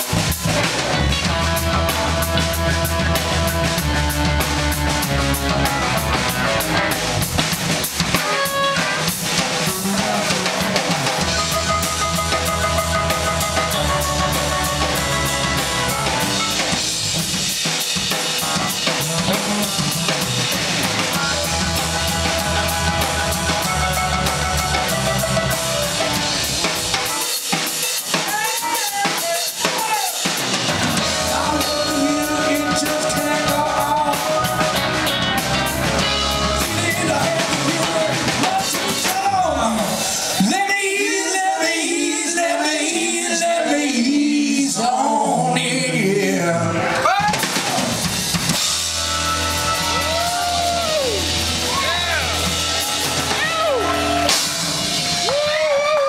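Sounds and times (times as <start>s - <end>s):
electric guitar: 0.0s - 27.6s, 30.4s - 40.4s, 46.6s - 56.0s
bass guitar: 0.0s - 28.4s, 29.2s - 40.8s, 45.5s - 56.0s
drum kit: 0.0s - 43.7s, 46.8s - 56.0s
keyboards: 0.0s - 43.9s, 46.5s - 56.0s
band singing: 18.5s - 27.2s, 28.1s - 56.0s.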